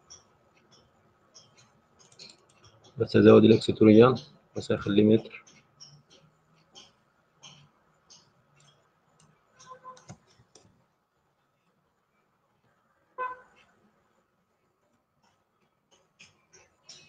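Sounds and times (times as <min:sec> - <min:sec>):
faint clicks: 0:05.4 - 0:10.8.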